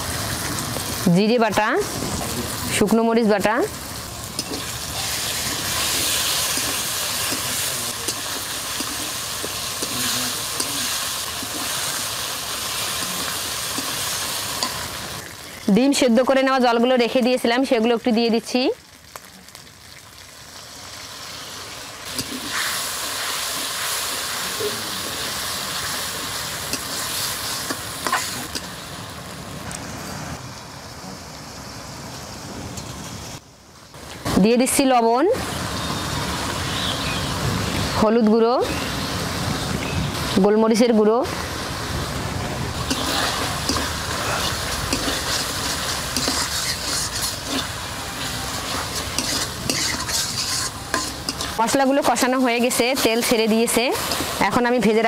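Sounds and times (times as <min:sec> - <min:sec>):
paste sizzling in hot oil: 0:00.0 - 0:29.1, 0:42.7 - 0:55.0
metal spatula scraping a pan: 0:42.9 - 0:47.7, 0:48.5 - 0:51.6.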